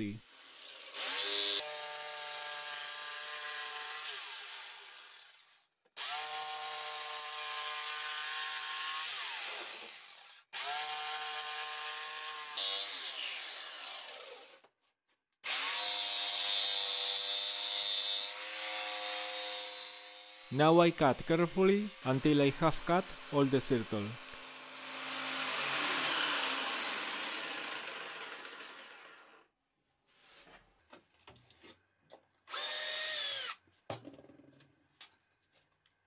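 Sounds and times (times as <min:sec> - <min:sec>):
jigsaw cutting wood: 0:00.3 - 0:05.4, 0:06.0 - 0:14.6, 0:15.4 - 0:29.5, 0:32.5 - 0:33.6
jigsaw motor winding down: 0:00.5 - 0:01.8, 0:12.6 - 0:14.6, 0:24.2 - 0:29.5, 0:32.5 - 0:33.6.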